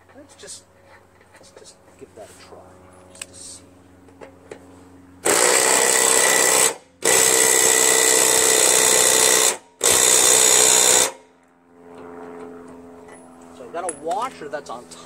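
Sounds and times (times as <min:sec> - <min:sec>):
impact driver running: 0:05.2 - 0:11.2.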